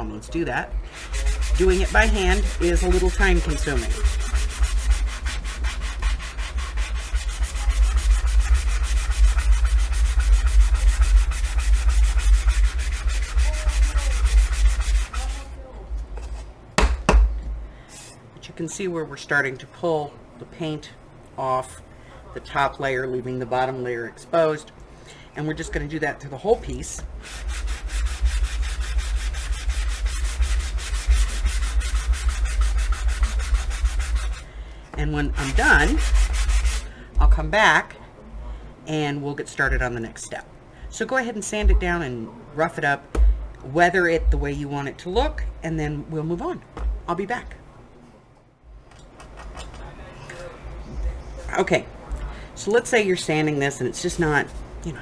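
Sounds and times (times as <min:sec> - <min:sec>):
sanding block on wood: 0:00.9 - 0:15.6, 0:27.0 - 0:34.4, 0:35.0 - 0:36.8.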